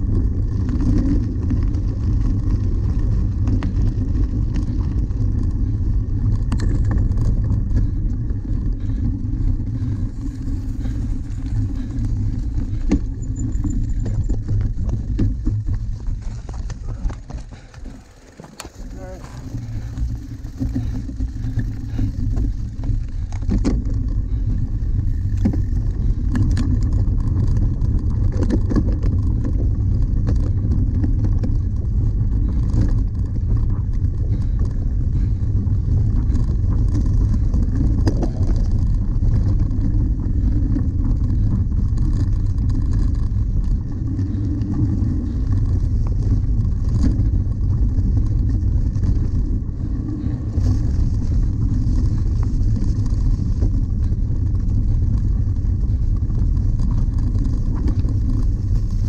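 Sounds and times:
bike knocks and rattles: 0:00.0 - 0:59.0
wind rumbling on microphone: 0:00.0 - 0:59.0.

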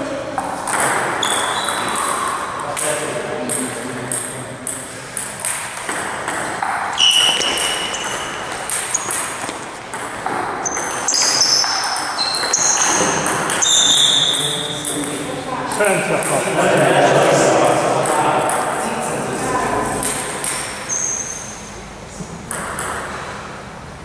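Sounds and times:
high-pitched squeaks: 0:01.2 - 0:02.5, 0:06.9 - 0:09.6, 0:10.5 - 0:15.0, 0:20.5 - 0:21.8
table tennis ball clicking: 0:03.5 - 0:15.3, 0:22.5 - 0:23.1.

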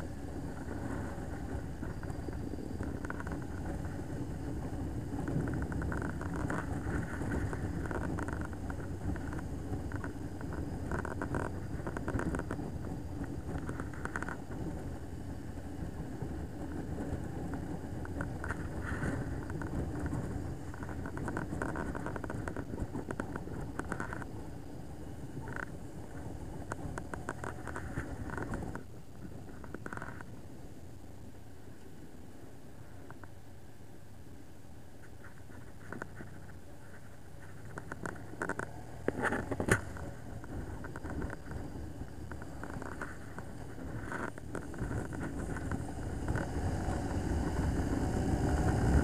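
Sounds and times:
wind noise: 0:00.0 - 0:33.5, 0:34.6 - 0:49.0
motorcycle engine: 0:35.5 - 0:49.0.

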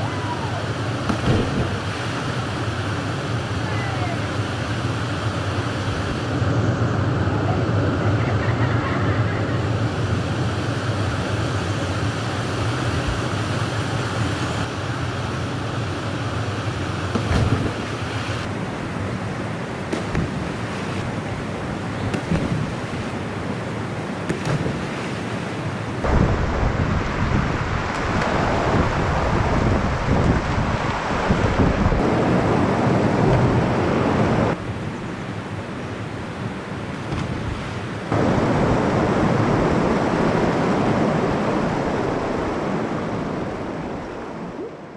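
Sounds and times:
water splashes: 0:00.0 - 0:06.3, 0:19.3 - 0:34.6
waterfall rushing: 0:00.0 - 0:06.3, 0:22.6 - 0:34.6, 0:37.9 - 0:44.6
wind buffeting microphone: 0:26.0 - 0:34.6.

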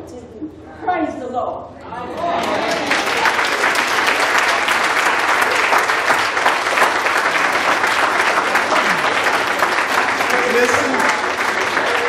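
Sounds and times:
congregation applauding: 0:02.1 - 0:12.0.

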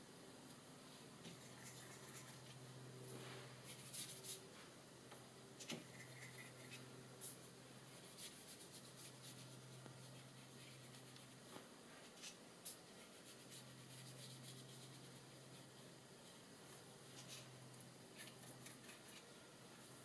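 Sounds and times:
low steady hum: 0:00.0 - 0:20.0
brush scratching on paper: 0:01.3 - 0:02.6, 0:03.6 - 0:04.4, 0:05.9 - 0:12.3, 0:13.0 - 0:16.4.

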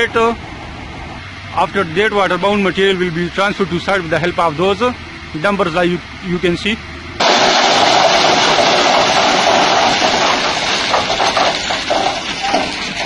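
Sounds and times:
stones tumbling off truck bed: 0:07.2 - 0:13.0.

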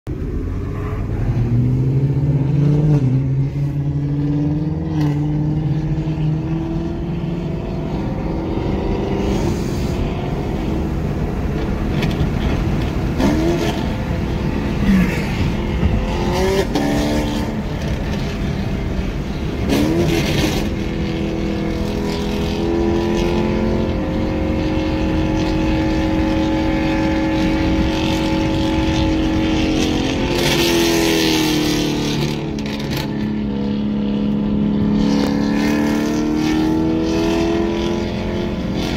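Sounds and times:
car engine at full throttle: 0:00.0 - 0:38.9
road noise: 0:00.0 - 0:38.9.

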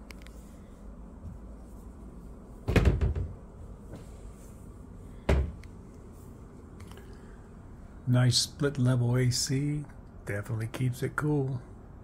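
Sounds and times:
closet door banging shut: 0:02.7 - 0:03.4.

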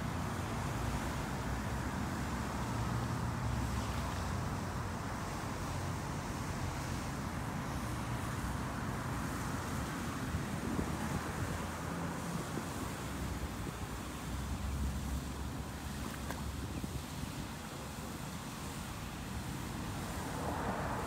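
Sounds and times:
continuous hiss: 0:00.0 - 0:21.0
wind rumbling on microphone: 0:09.2 - 0:17.6.

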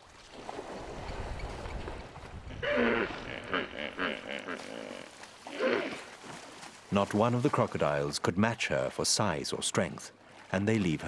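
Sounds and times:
hippopotamus grunting: 0:02.5 - 0:06.1.

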